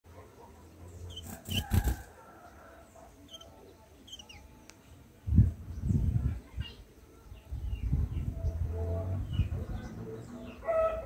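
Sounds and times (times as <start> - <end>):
high bird chirps: 1.1 - 1.8, 4.1 - 4.4.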